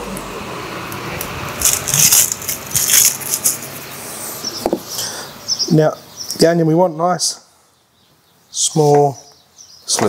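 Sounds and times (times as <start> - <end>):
onion skin crackling rustles: 1.5 - 3.8.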